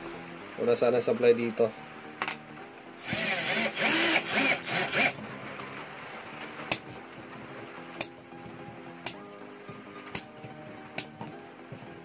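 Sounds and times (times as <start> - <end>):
drill motor whining: 3.0 - 5.2.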